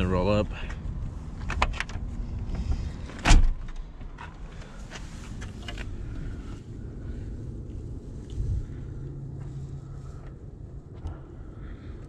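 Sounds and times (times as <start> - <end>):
low steady rumble: 0.0 - 12.0
light clicks and handling noise: 1.4 - 6.2.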